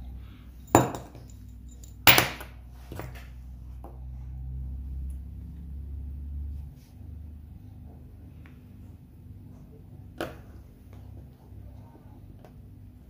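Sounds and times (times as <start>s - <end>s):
low steady hum: 0.0s - 13.0s
metal tools clinking on table: 0.6s - 3.2s.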